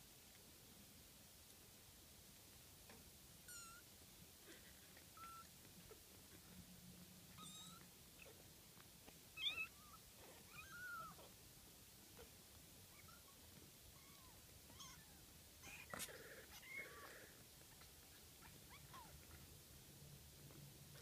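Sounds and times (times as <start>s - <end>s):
kittens mewing: 4.4s - 6.5s, 14.0s - 19.4s.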